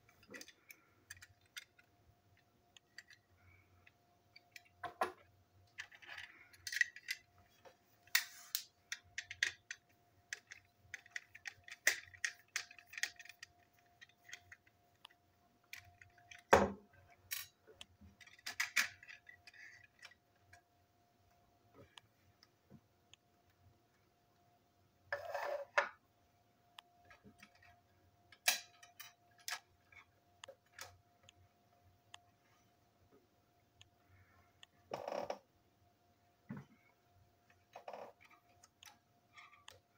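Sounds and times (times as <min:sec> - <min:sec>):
plastic models clicking on table: 0:08.1 - 0:17.5.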